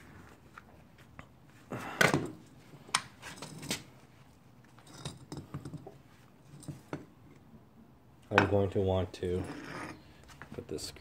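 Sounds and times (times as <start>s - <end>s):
metal parts clinking and knocking: 3.2s - 3.9s, 4.8s - 7.0s.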